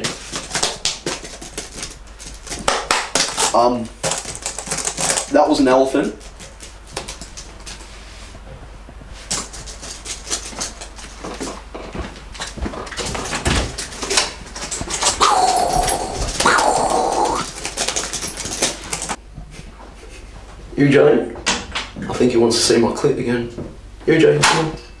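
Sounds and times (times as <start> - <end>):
scattered clicks and knocks: 9.3 - 19.2
long drawn-out cries: 15.2 - 17.5.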